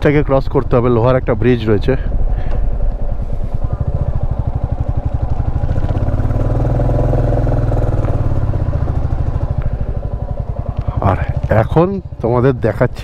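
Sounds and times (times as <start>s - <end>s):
motorcycle engine running: 1.3s - 13.0s.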